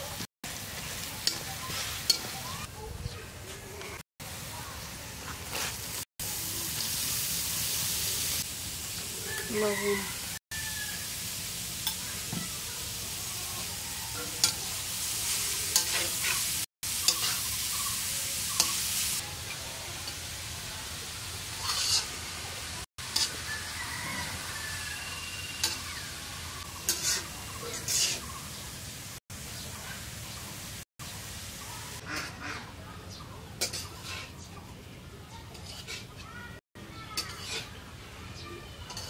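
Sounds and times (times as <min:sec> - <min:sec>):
food sizzling in oil: 0:00.0 - 0:02.9, 0:04.2 - 0:32.4, 0:33.6 - 0:34.4, 0:35.5 - 0:38.2, 0:38.8 - 0:39.0
spatula scraping and clinking pan: 0:15.7 - 0:17.8, 0:21.6 - 0:22.1, 0:26.7 - 0:28.3, 0:33.6 - 0:34.5, 0:35.5 - 0:36.2, 0:37.1 - 0:37.7.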